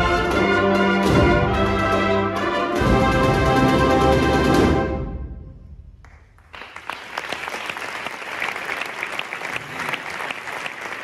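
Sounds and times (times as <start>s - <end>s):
brass band chord: 0.0s - 5.5s
audience applause: 6.4s - 11.0s.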